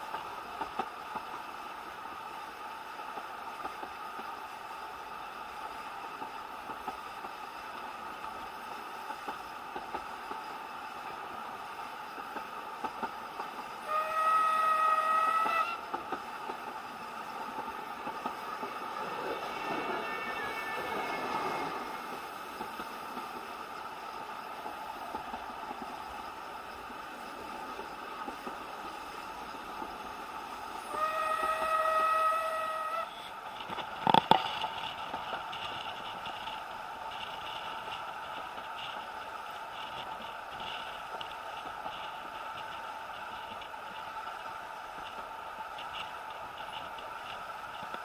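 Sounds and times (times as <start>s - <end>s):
train carriage rolling: 0.0s - 48.0s
train wheel clicks: 0.0s - 48.0s
steam locomotive whistle: 13.8s - 15.9s, 19.3s - 22.1s, 30.8s - 33.4s.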